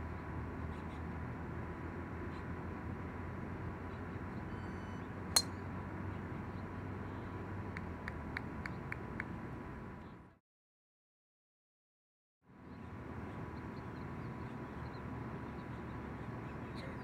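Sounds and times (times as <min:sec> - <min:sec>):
outdoor background noise: 0:00.0 - 0:10.4, 0:12.4 - 0:17.0
golf club striking ball: 0:05.4 - 0:05.6.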